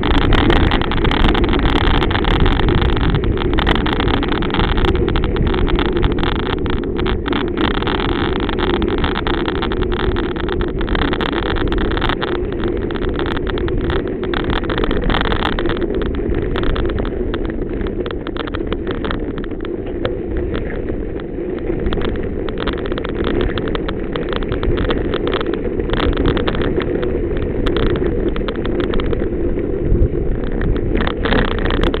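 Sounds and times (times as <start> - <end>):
knocks and rattles: 0.0 - 20.8
vehicle rumbling on gravel: 0.0 - 32.0
wind on microphone: 0.0 - 32.0.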